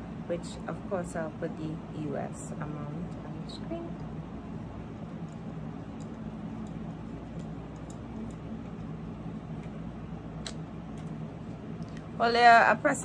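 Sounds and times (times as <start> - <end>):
steady low hum: 0.0 - 13.0
curling iron ticks: 5.0 - 8.9.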